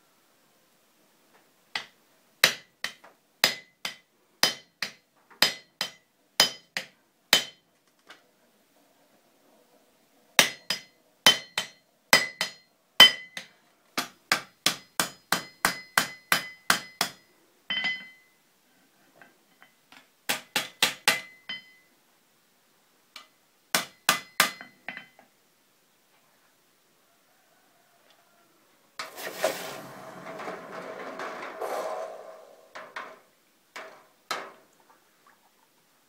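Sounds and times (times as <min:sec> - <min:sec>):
hammer striking iron on anvil: 0:01.8 - 0:07.6, 0:10.4 - 0:18.2, 0:20.3 - 0:21.8, 0:23.2 - 0:25.2.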